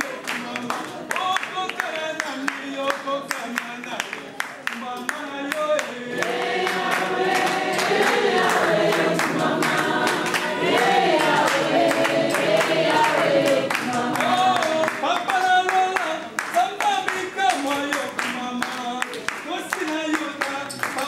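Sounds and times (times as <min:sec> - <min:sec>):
rhythmic hand-clapping: 0:00.0 - 0:21.0
group of voices singing: 0:05.4 - 0:16.4.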